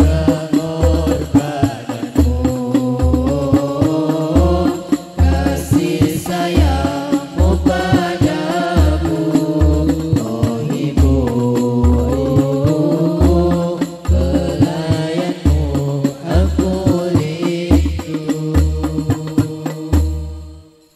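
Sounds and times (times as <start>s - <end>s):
frame drum beats: 0.0s - 20.7s
voices singing: 0.0s - 20.7s.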